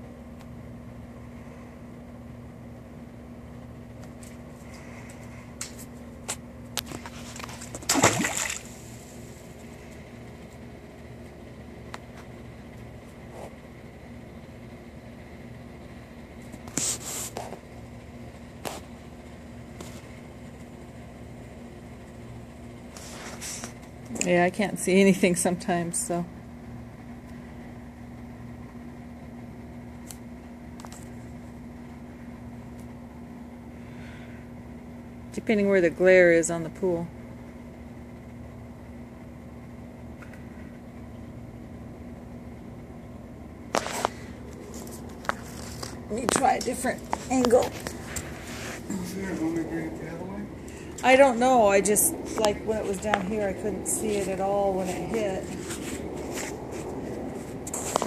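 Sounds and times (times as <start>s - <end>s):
steady background hum: 0.0s - 58.0s
camera splashing into water: 6.9s - 8.8s.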